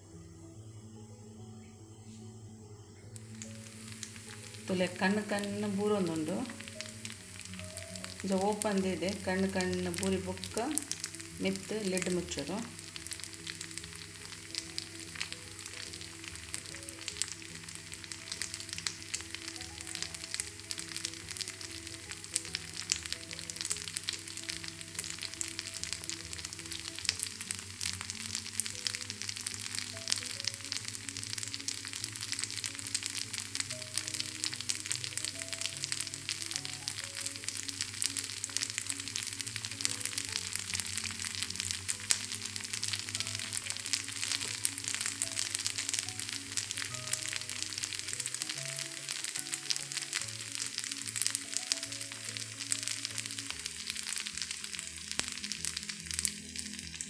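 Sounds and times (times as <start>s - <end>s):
soft background music: 0.0s - 57.0s
batter sizzling in a pan: 2.8s - 57.0s.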